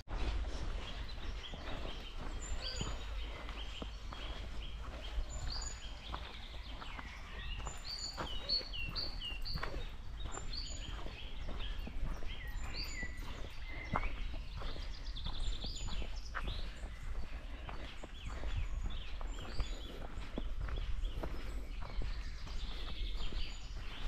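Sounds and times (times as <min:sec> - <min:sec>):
soft footsteps: 0:00.0 - 0:24.0
small birds chirping and whistling: 0:00.2 - 0:24.0.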